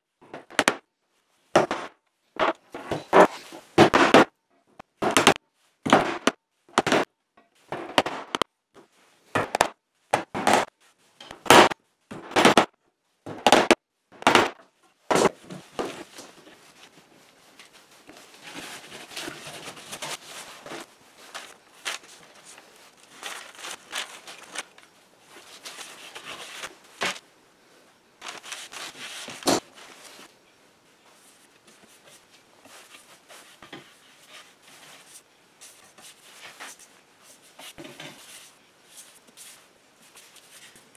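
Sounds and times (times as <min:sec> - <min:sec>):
hammer striking nails into wood: 0:01.6 - 0:02.5, 0:05.0 - 0:07.1, 0:09.4 - 0:10.7, 0:11.4 - 0:12.7, 0:13.3 - 0:15.3
cloth rubbing over wood: 0:28.2 - 0:30.3.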